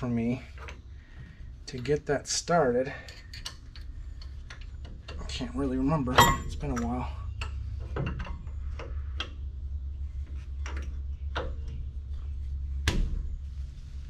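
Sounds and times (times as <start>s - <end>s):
low hum: 0.0s - 14.0s
metal clicks of brake pads: 2.9s - 9.5s, 10.3s - 11.9s.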